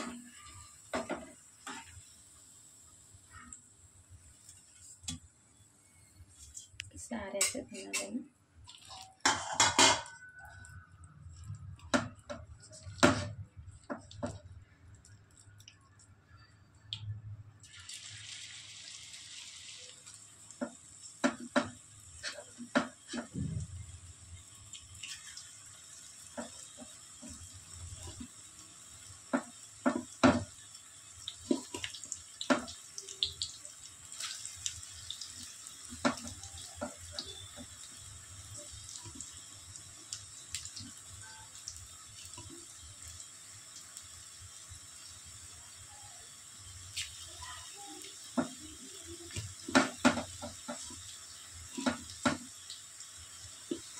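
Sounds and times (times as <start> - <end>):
dishes and utensils clinking: 8.9 - 10.4
kitchen tap running: 17.6 - 53.9.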